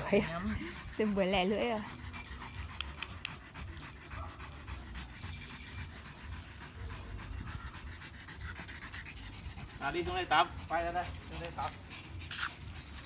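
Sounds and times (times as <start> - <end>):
dog panting: 0.0 - 13.0.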